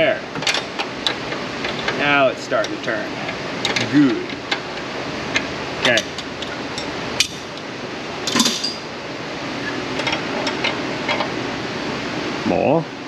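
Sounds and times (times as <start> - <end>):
steady background hiss: 0.0 - 13.0
metal clatter: 8.3 - 8.9.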